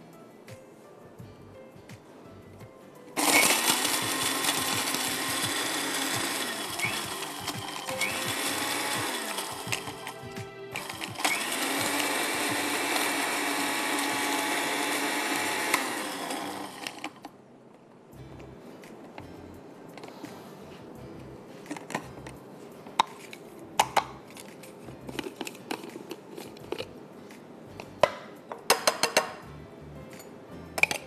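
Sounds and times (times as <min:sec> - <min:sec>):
electric spice grinder running: 0:03.2 - 0:17.2.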